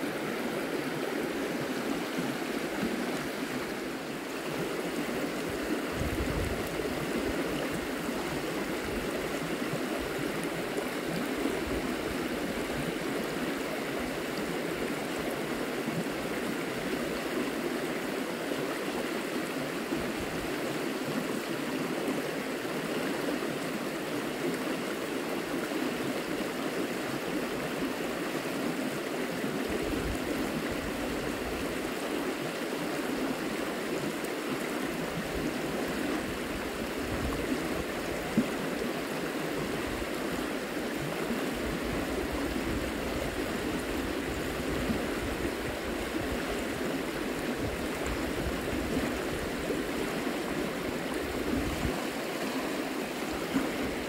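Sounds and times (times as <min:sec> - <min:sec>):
river flowing: 0:00.0 - 0:54.0.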